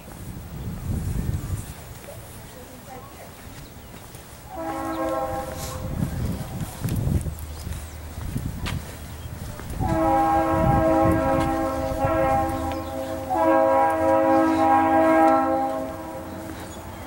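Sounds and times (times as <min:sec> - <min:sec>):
train horn blowing: 0:04.5 - 0:06.7, 0:09.7 - 0:17.0.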